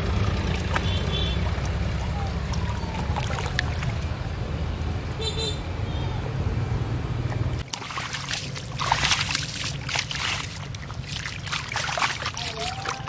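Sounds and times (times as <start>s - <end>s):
splashing in muddy water: 0.0s - 4.2s, 7.6s - 13.0s.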